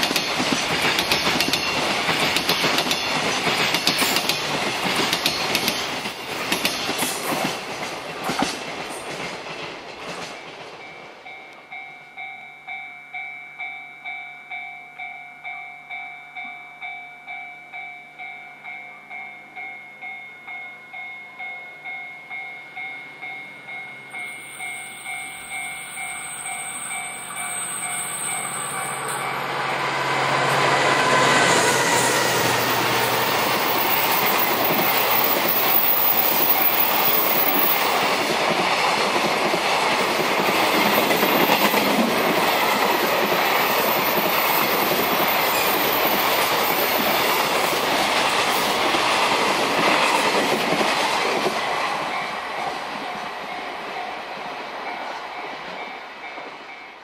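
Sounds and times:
diesel locomotive engine: 0:22.7 - 0:57.0
repeating ringing tone: 0:22.9 - 0:29.9.

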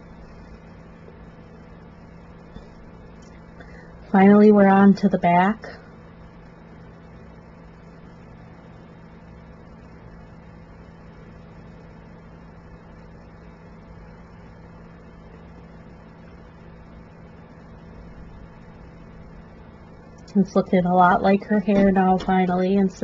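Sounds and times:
low hum: 0:00.0 - 0:23.0.

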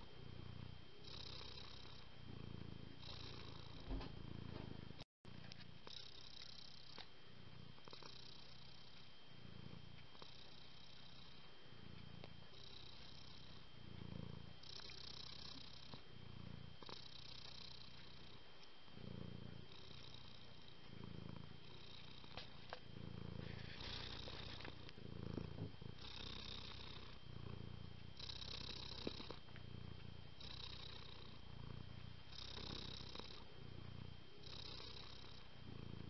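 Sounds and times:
cat purring: 0:00.0 - 0:36.0
breathy hiss: 0:19.0 - 0:36.0.

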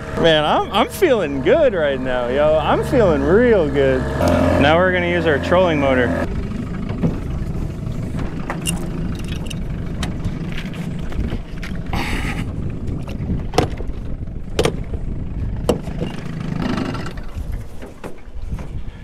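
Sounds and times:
low rumble: 0:00.0 - 0:17.7
motor mount clunks and clicks: 0:08.1 - 0:11.8, 0:12.9 - 0:15.0.

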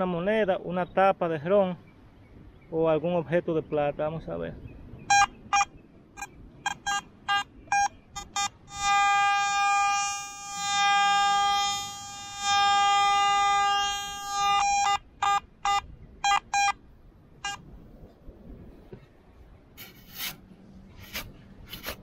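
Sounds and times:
metal detector short beeps: 0:05.1 - 0:10.0, 0:14.5 - 0:16.8
metal detector held tone: 0:05.1 - 0:16.8.

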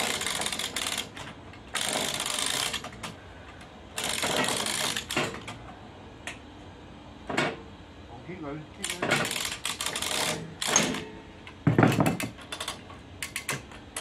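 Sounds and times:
clamp ratchet clicking: 0:00.0 - 0:03.1, 0:04.0 - 0:05.5, 0:08.8 - 0:11.0, 0:12.2 - 0:14.0
sharp metal knocks: 0:10.2 - 0:12.4.

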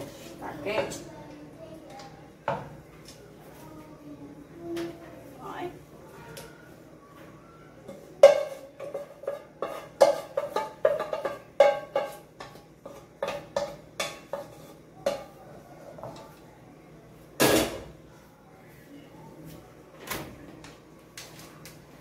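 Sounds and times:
metal pot clanking: 0:07.9 - 0:15.4.

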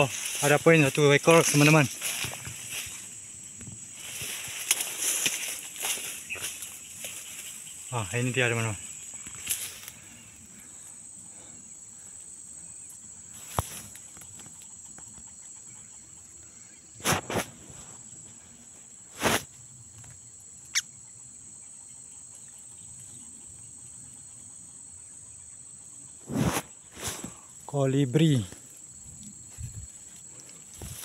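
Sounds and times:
rustling in vegetation: 0:00.0 - 0:14.8, 0:17.0 - 0:20.1, 0:26.2 - 0:31.0
insects droning: 0:00.0 - 0:31.0.

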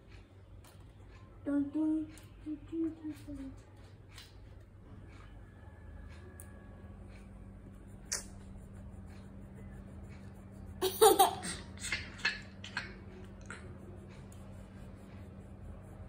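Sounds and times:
young boy laughing: 0:10.8 - 0:13.0.

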